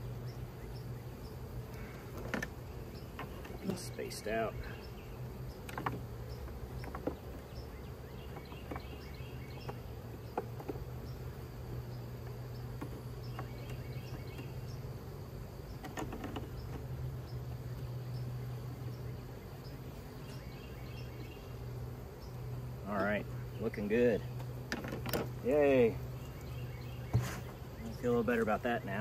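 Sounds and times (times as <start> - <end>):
honeybees buzzing: 0.0 - 29.0
light wooden clicks and knocks: 2.0 - 3.7, 5.6 - 7.6, 8.2 - 10.8, 11.7 - 14.5, 15.8 - 16.9, 24.4 - 25.4.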